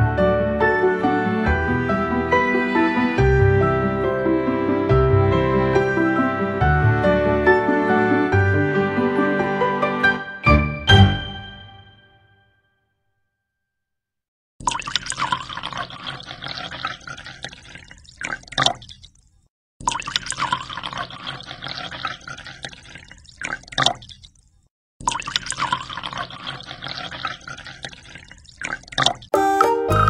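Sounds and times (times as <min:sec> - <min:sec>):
water pouring into aquarium: 0:14.6 - 0:29.3.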